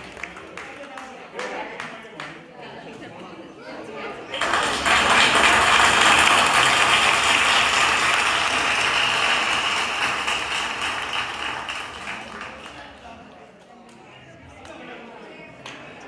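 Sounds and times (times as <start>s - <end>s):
audience applauding: 0.0s - 2.3s, 4.3s - 13.1s.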